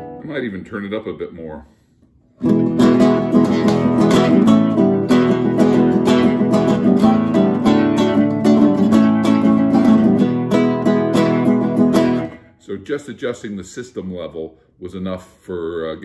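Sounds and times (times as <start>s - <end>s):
nylon-string guitar strummed: 0.0s - 0.3s, 2.4s - 12.6s.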